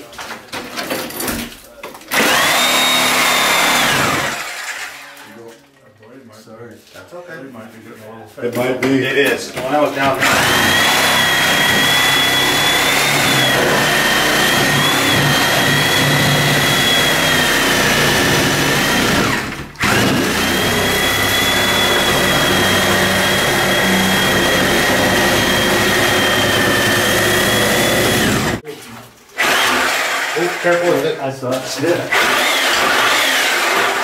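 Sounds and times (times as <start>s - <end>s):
reciprocating saw cutting wood: 2.1s - 5.2s, 10.1s - 28.6s, 29.4s - 31.1s, 31.8s - 34.0s.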